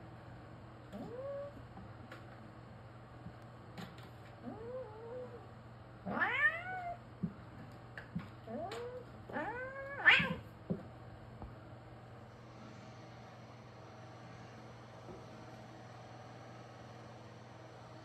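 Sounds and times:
cat meowing: 0:06.1 - 0:07.0, 0:08.5 - 0:10.5.

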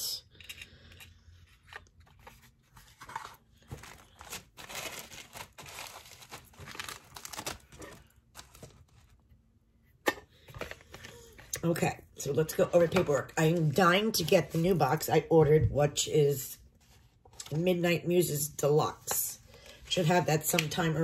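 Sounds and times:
packaging rustling and crinkling: 0:01.6 - 0:09.2.

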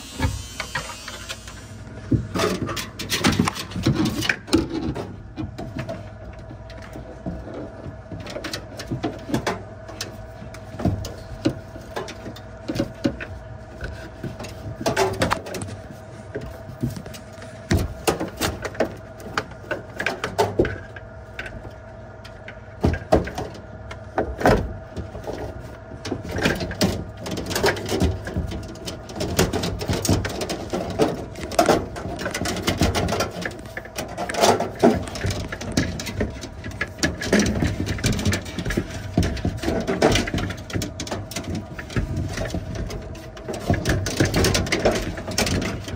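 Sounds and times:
metal knocks clicks and scrapes: 0:00.0 - 0:21.7, 0:22.3 - 0:45.9
steady hum: 0:00.0 - 0:45.9.

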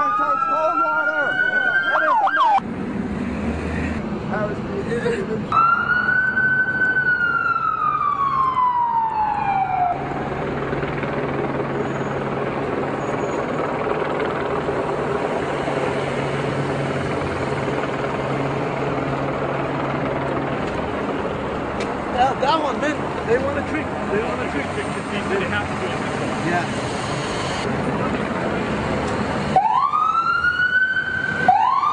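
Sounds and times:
emergency siren wailing: 0:00.0 - 0:02.6, 0:05.5 - 0:21.3, 0:28.6 - 0:31.9
street noise: 0:00.0 - 0:31.9.

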